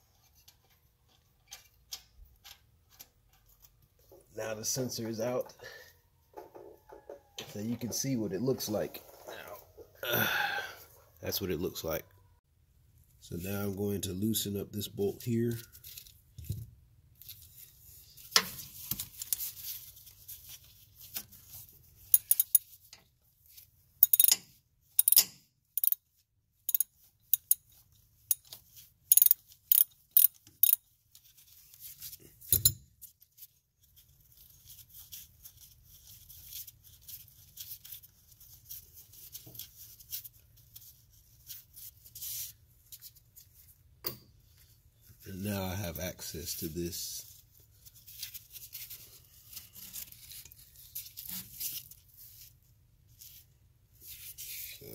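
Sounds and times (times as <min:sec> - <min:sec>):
ratchet wrench clicking: 0:22.1 - 0:22.6, 0:24.0 - 0:24.4, 0:25.0 - 0:26.0, 0:26.7 - 0:27.6, 0:29.1 - 0:30.8
tool handling noise: 0:22.1 - 0:23.0, 0:24.0 - 0:26.0, 0:26.7 - 0:27.7, 0:28.3 - 0:30.8, 0:32.4 - 0:32.8.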